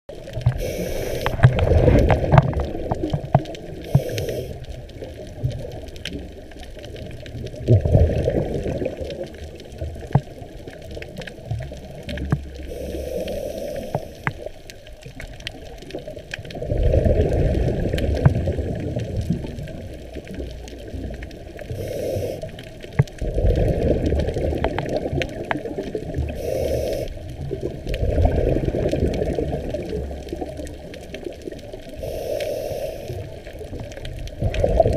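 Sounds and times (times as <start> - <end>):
regulator hiss on inhale: 0.4 - 1.6, 3.8 - 4.8, 12.6 - 14.5, 21.6 - 22.9, 26.2 - 27.4, 31.9 - 33.6
gurgling exhaust bubbles: 1.2 - 13.3, 16.5 - 26.4, 27.0 - 32.1, 33.2 - 34.9.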